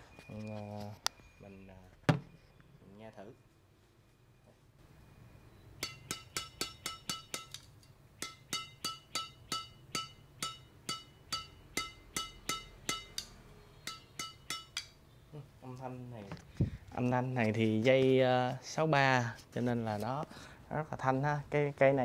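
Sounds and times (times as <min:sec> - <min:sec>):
racket strings pinging when struck: 0:08.2 - 0:15.0.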